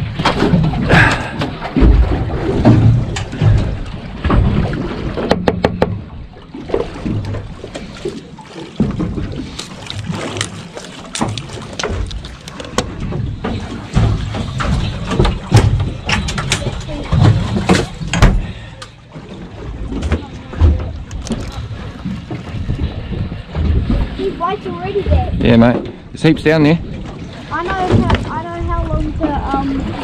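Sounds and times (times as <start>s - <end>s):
knocks on metal boat deck: 5.2s - 6.1s.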